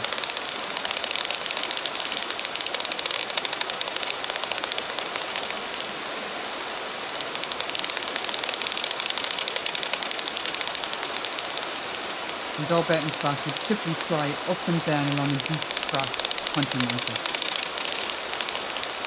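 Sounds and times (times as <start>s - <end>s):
bat detector clicks: 0.0s - 5.6s, 7.3s - 11.7s, 14.8s - 19.0s.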